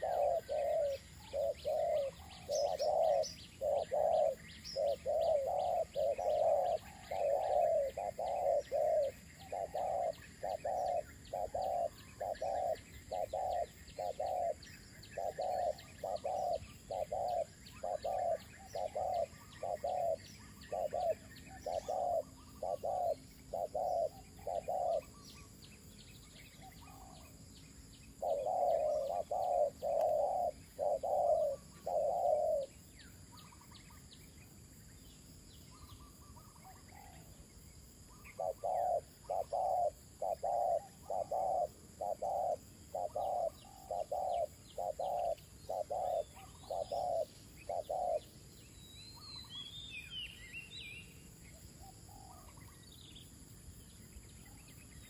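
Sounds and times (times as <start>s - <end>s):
dove cooing: 0.0s - 25.5s, 26.6s - 27.4s, 28.2s - 33.8s, 38.1s - 48.3s, 51.8s - 52.7s.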